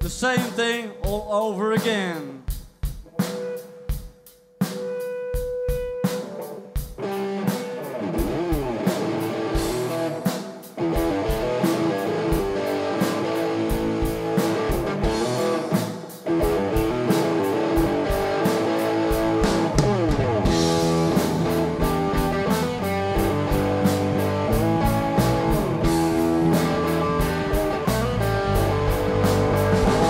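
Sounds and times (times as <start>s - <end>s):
drum kit: 0.0s - 30.0s
electric guitar bending notes: 5.8s - 10.2s, 10.8s - 15.7s, 16.3s - 30.0s
bass guitar: 6.9s - 30.0s.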